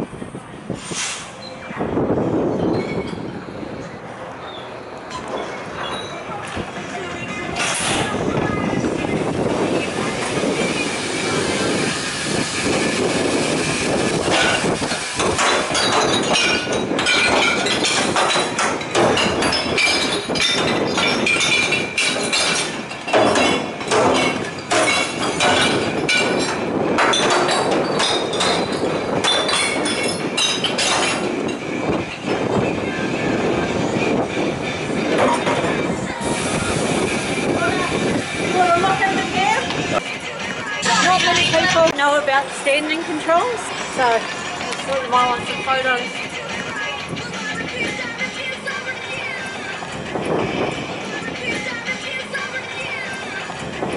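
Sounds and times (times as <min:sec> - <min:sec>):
glass bottles clattering and clinking: 0:05.1 - 0:06.4, 0:14.3 - 0:31.6.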